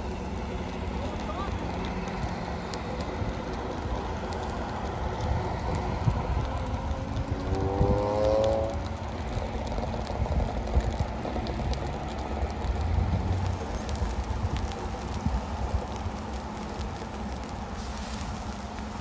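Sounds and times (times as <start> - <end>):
vehicle engine accelerating: 0.0 - 15.7
highway traffic rumble: 0.0 - 19.0.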